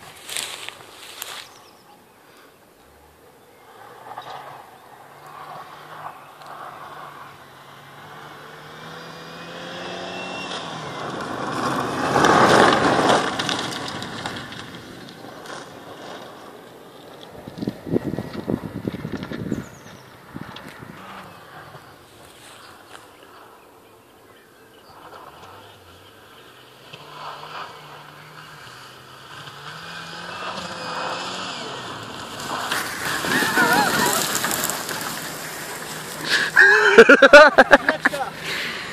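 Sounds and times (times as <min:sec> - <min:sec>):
tyres rushing on dirt: 0:00.0 - 0:38.9
car engine revving: 0:02.8 - 0:22.9, 0:24.8 - 0:38.9.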